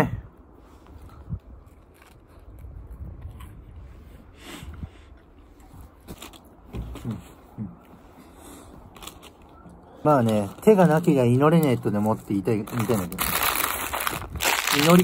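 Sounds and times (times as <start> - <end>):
person chewing: 1.4 - 3.9.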